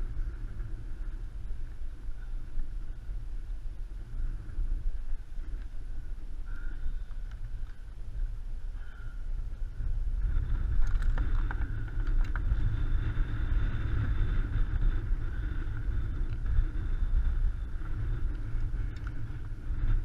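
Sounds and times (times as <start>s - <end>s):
wind buffeting microphone: 0.0s - 20.0s
small clicks: 10.7s - 12.7s, 18.2s - 19.5s.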